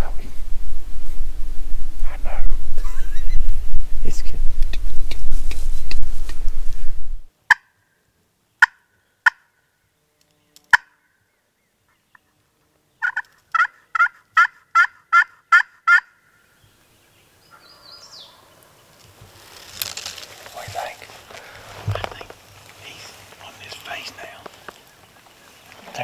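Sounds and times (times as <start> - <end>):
turkey call clucks: 7.5 - 7.8, 8.6 - 9.6, 10.7 - 11.1, 13.0 - 16.2
turkey call yelps: 7.5 - 7.8, 8.6 - 9.6, 10.7 - 11.1, 13.0 - 16.4.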